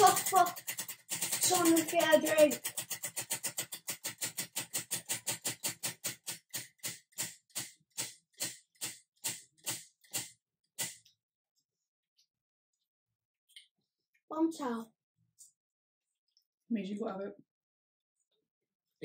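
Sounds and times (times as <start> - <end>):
prize wheel pointer clicking: 0.0 - 10.9.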